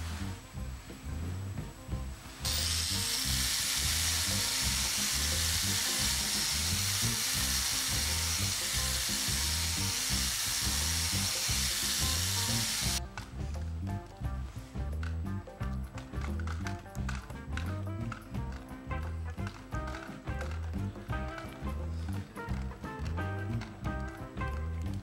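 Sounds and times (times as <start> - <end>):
background music with steady beat: 0.0 - 25.0
angle grinder grinding steel: 2.4 - 13.0.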